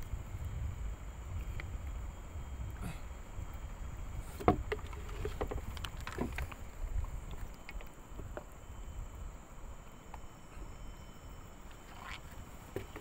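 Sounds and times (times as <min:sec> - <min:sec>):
water sloshing and splashing: 0:04.3 - 0:08.4
small knocks: 0:04.4 - 0:06.6, 0:12.7 - 0:13.0.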